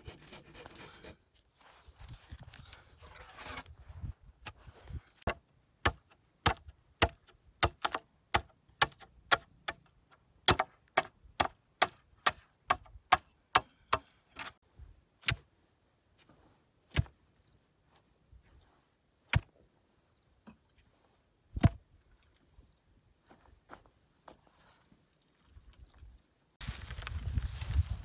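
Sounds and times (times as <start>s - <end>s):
machete chopping: 5.3s - 9.8s, 10.5s - 14.5s, 19.3s - 19.5s, 21.6s - 21.8s.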